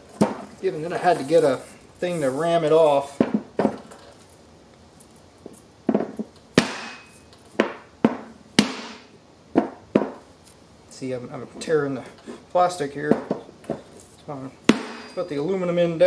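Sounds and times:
sharp ringing knocks: 0:06.6 - 0:10.2, 0:14.7 - 0:15.2.

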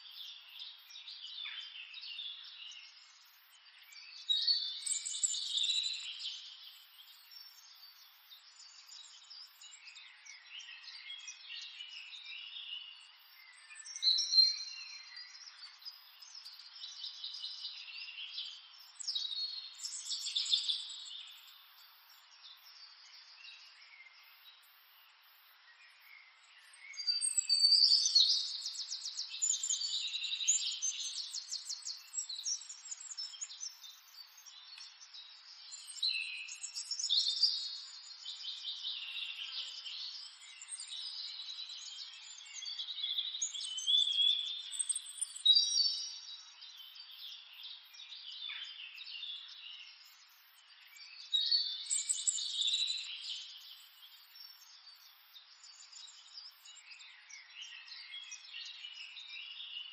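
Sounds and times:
birds chirping and singing: 0:26.8 - 0:47.8.

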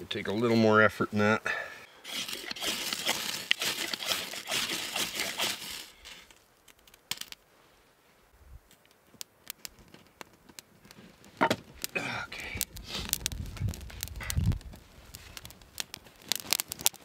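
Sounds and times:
knife scraping ferro rod: 0:02.1 - 0:06.3.

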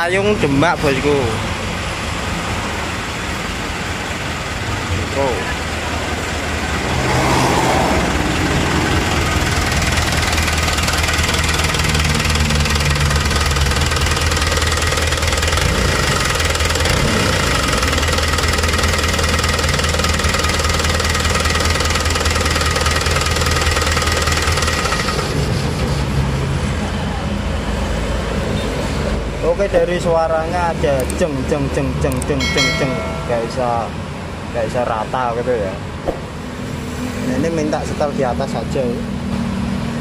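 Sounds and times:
diesel engine idling unevenly: 0:00.1 - 0:07.0, 0:08.0 - 0:28.4.

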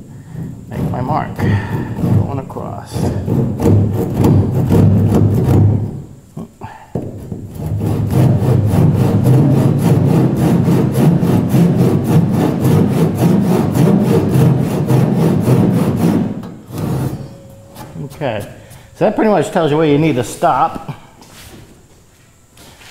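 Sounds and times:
hand saw cutting wood: 0:00.7 - 0:05.9, 0:07.1 - 0:17.4.

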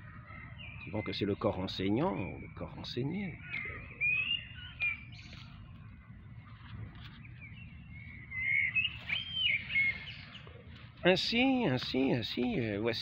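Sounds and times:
songbirds singing: 0:00.0 - 0:13.0
low background rumble: 0:02.4 - 0:12.8.

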